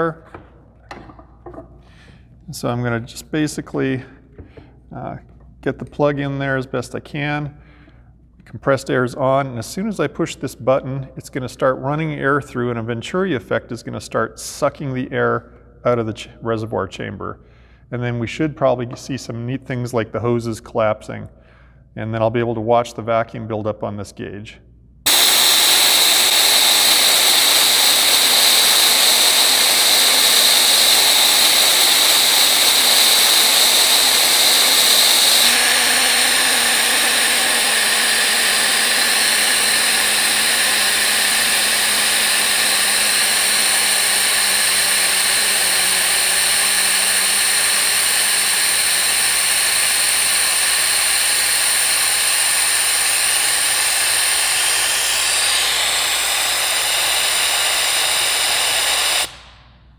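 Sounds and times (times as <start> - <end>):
compressed air hissing loudly: 25.1 - 59.6.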